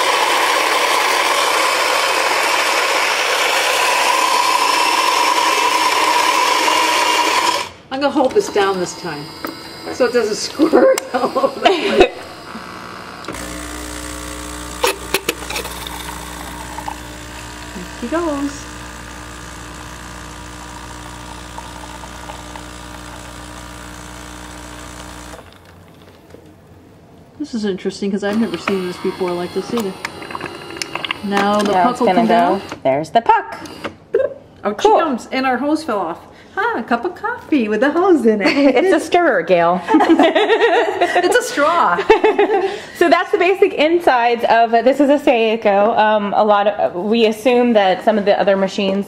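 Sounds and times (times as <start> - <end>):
coffee grinder whirring: 0.0 - 26.2, 28.3 - 32.8
espresso machine pump buzzing: 0.0 - 26.2, 28.3 - 32.8.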